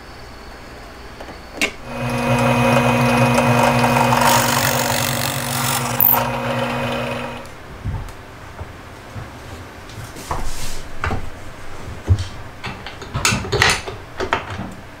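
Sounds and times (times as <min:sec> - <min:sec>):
drill bit boring into wood: 0:01.8 - 0:07.5
drill press motor hum: 0:01.8 - 0:07.5.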